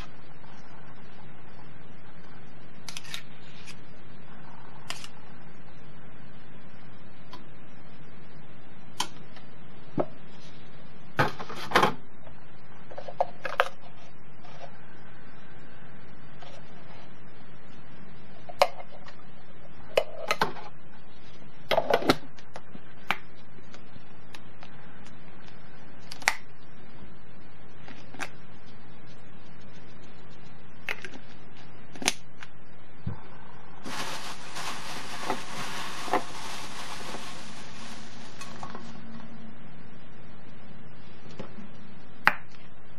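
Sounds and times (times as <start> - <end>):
steady low hum: 0.0 - 42.9
steady rustling hiss: 32.6 - 39.5.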